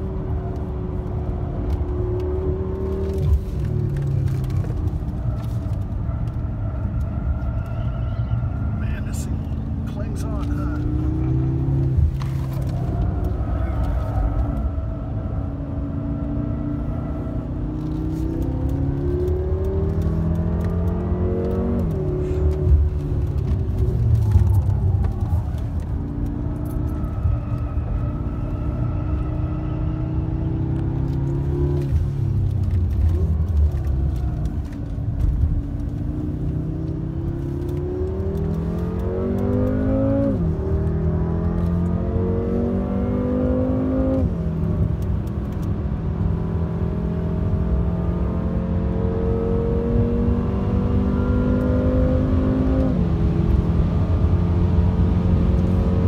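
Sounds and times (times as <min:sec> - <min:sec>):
car engine accelerating hard: 0:00.0 - 0:56.0.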